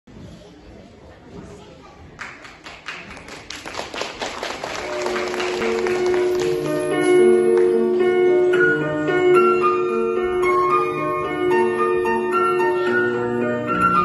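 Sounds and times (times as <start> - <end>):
audience clapping: 2.2 - 7.8.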